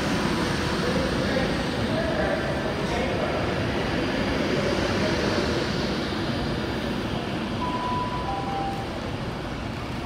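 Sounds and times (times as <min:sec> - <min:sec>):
two-note tone: 0:07.6 - 0:08.9.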